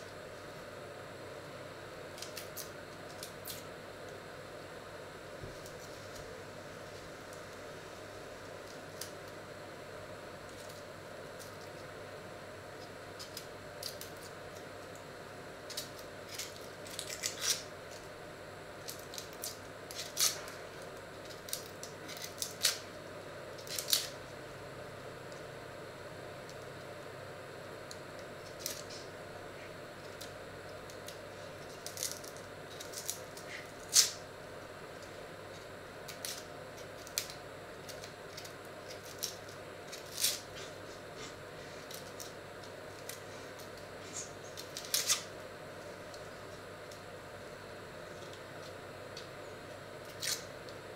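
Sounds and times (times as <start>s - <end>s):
onion skins crackling and tearing: 15.7s - 18.1s, 18.8s - 22.9s, 23.6s - 24.2s, 30.0s - 34.2s, 36.1s - 42.3s, 42.9s - 45.3s, 50.0s - 50.5s.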